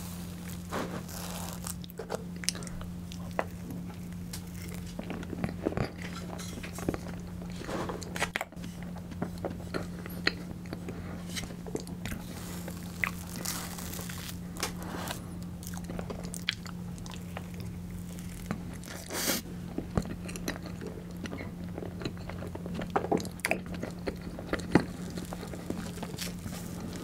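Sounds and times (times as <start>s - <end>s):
steady low hum: 0.0s - 27.0s
chewing with sticky mouth clicks: 15.6s - 19.1s, 19.7s - 27.0s.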